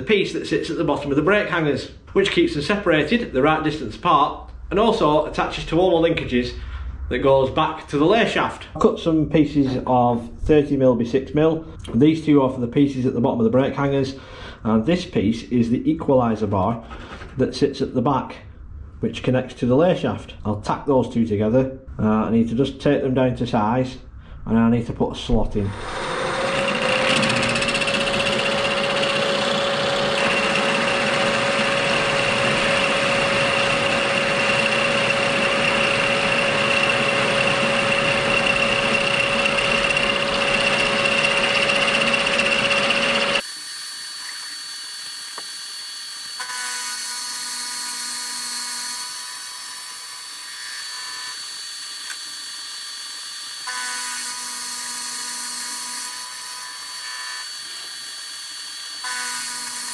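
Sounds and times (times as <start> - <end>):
milling machine cutting steel: 25.7 - 59.9
steady machine whine: 25.8 - 47.8.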